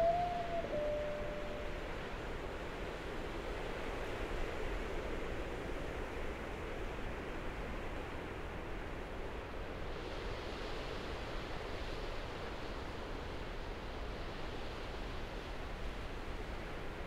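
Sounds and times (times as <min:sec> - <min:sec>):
wind: 0:00.0 - 0:17.0.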